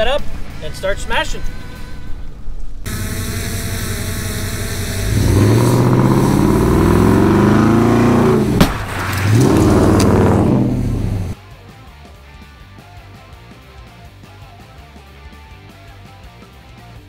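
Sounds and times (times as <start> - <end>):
truck engine revving: 2.9 - 11.4
truck crashing into car: 8.6 - 11.1.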